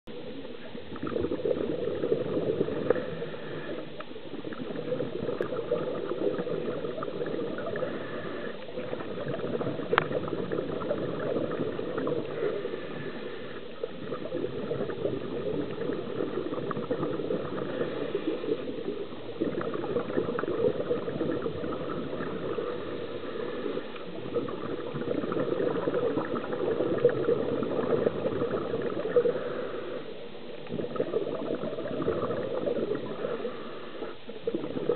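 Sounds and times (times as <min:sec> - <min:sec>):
underwater regulator bubbling: 0:00.1 - 0:34.9.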